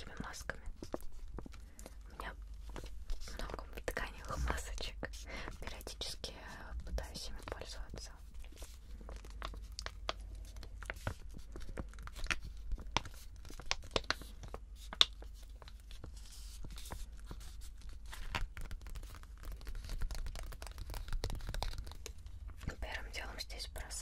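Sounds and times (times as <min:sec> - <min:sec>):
packet crinkling: 0:08.4 - 0:16.1, 0:16.8 - 0:22.4
nails tapping on packet: 0:09.1 - 0:15.2, 0:18.3 - 0:22.2.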